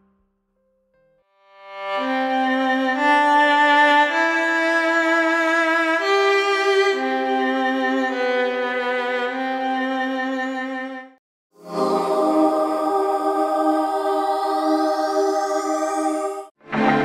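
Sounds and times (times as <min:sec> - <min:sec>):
violin melody: 0:01.4 - 0:14.4, 0:16.6 - 0:17.0.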